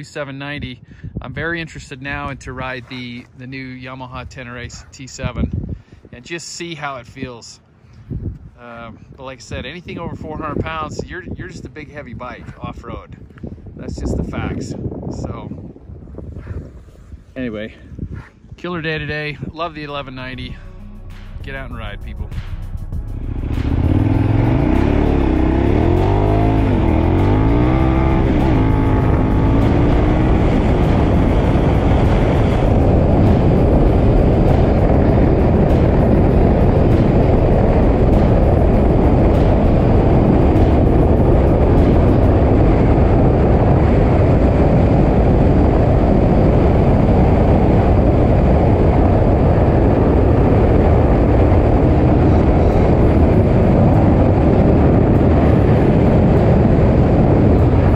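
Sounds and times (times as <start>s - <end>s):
wind rush: 0.0s - 57.9s
motorcycle engine accelerating: 20.4s - 57.9s.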